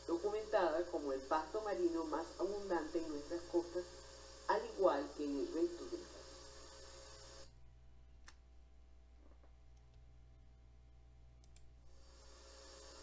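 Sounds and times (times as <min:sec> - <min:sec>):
faint steady hum and hiss: 0:00.0 - 0:13.0
faint clicks: 0:11.4 - 0:11.7.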